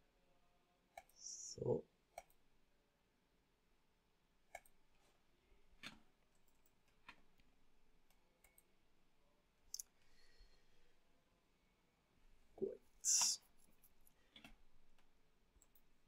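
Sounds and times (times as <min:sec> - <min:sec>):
faint computer mouse clicks: 0:04.5 - 0:04.8.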